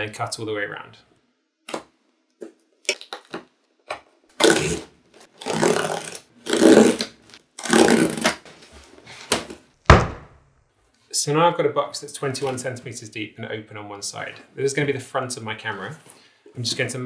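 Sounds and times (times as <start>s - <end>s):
knife cutting cardboard: 4.4s - 8.4s
sharp knock: 9.9s - 10.5s.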